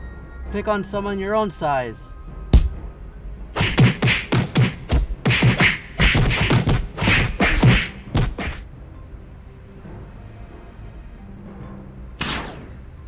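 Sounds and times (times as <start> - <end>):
punch and kick impacts: 2.5 - 2.8, 3.6 - 8.6, 12.2 - 12.8
short swishes: 3.6 - 8.6, 12.2 - 12.8.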